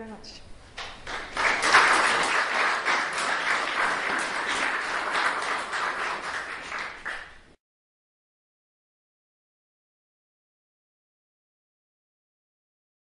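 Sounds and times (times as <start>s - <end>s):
audience applauding: 0.8s - 7.5s.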